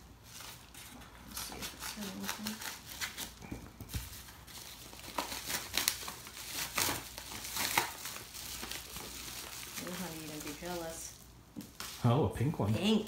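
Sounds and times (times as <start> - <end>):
paper mailer crinkling and tearing: 0.2 - 3.4, 4.0 - 11.0.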